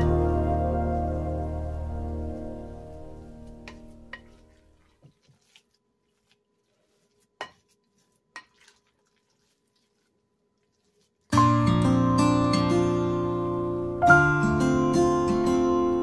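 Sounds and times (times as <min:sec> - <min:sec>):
spatula tapping glass bowl: 0:03.7 - 0:04.5, 0:07.4 - 0:07.7.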